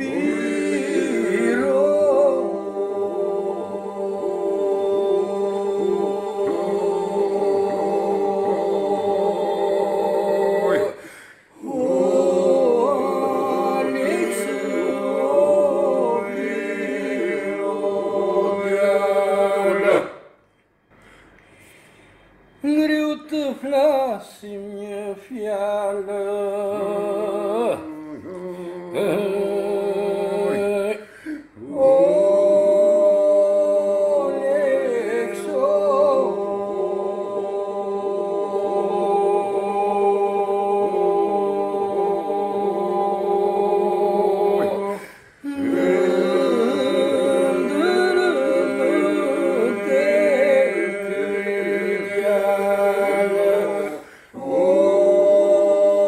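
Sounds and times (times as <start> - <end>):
solo voices singing melody: 0.0 - 20.4, 22.6 - 56.0
group holding vocal drone: 0.0 - 22.2, 24.9 - 56.0.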